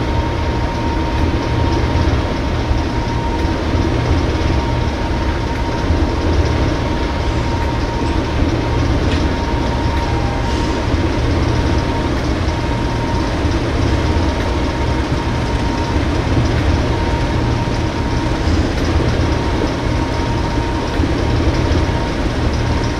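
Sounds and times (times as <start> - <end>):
diesel locomotive engine running: 0.0 - 22.9
thin steady whistle: 9.1 - 13.3.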